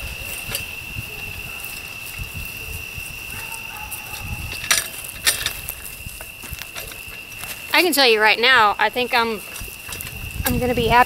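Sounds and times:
cart wheels rolling on grass: 0.0s - 11.0s
metal frame clicks: 4.5s - 7.3s.

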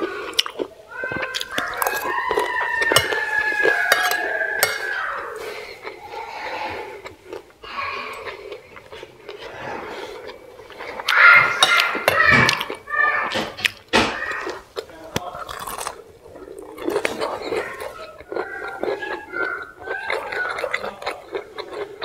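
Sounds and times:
mouth eating sounds: 0.0s - 22.0s
cutlery scraping ceramic plate: 2.8s - 5.5s.

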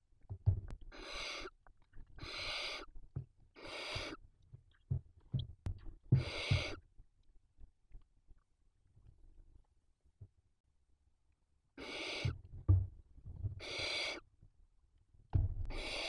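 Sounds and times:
soft thumps and rustles: 0.3s - 0.8s, 12.4s - 13.6s, 15.3s - 15.8s
owl chicks hissing: 0.9s - 1.6s, 2.2s - 2.9s, 3.6s - 4.2s, 6.2s - 6.8s, 11.8s - 12.4s, 13.6s - 14.3s, 15.7s - 16.0s.

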